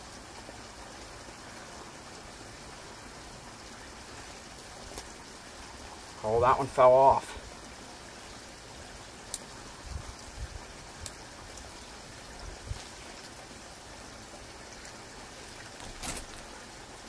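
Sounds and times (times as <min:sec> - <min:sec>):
steady outdoor hiss: 0:00.0 - 0:17.0
sharp rustle: 0:15.5 - 0:16.6.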